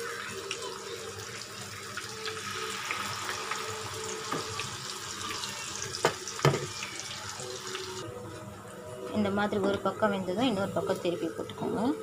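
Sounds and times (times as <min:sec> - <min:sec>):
fritters sizzling in hot oil: 0:00.0 - 0:08.0.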